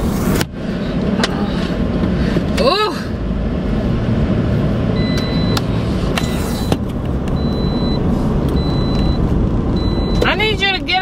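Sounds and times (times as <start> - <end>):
road and engine rumble: 0.0 - 11.0.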